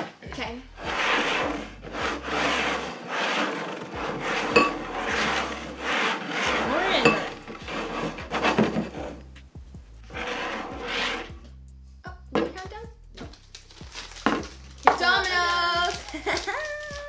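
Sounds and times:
plastic bowls scraping on wood: 0:00.8 - 0:09.2, 0:10.1 - 0:11.3.

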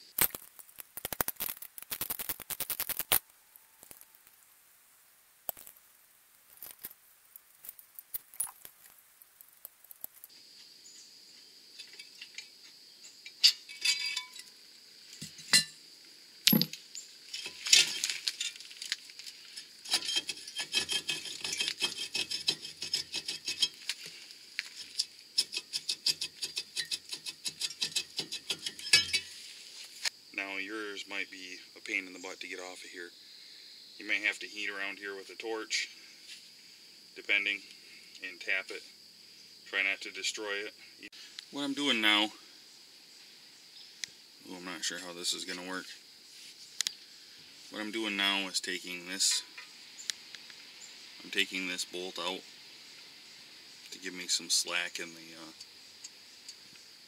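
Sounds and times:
metal parts clinking: 0:13.4 - 0:14.5, 0:16.5 - 0:16.8, 0:27.6 - 0:29.4.

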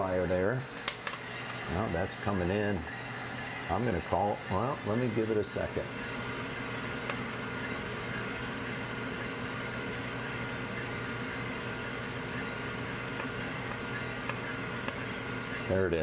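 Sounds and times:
coffee roaster humming: 0:00.0 - 0:16.0.

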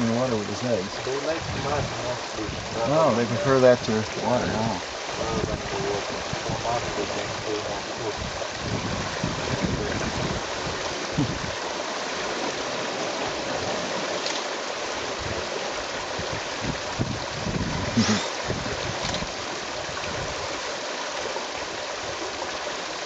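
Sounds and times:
wind buffeting microphone: 0:00.0 - 0:11.7, 0:15.1 - 0:20.6
steady watery hiss: 0:00.0 - 0:23.0.

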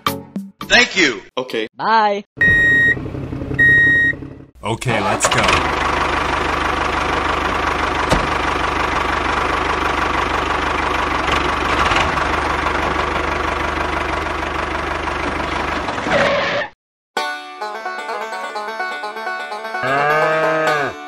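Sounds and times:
small tractor engine chugging: 0:04.8 - 0:16.0.

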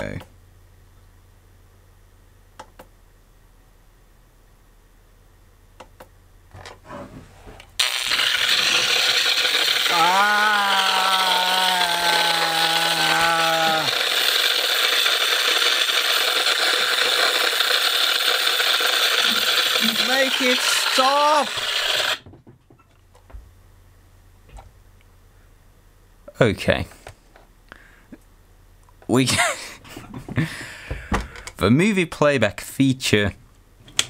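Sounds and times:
pitched drone: 0:08.5 - 0:14.4.

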